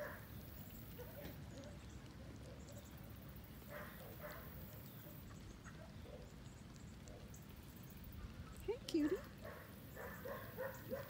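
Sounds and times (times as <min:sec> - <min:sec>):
low background noise: 0:00.0 - 0:11.0.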